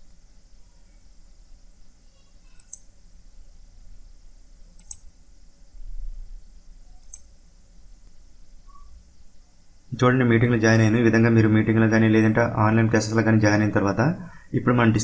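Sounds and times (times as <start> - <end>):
low background hum: 0.0 - 15.0
faint sharp clicks: 4.8 - 5.1, 7.0 - 7.3.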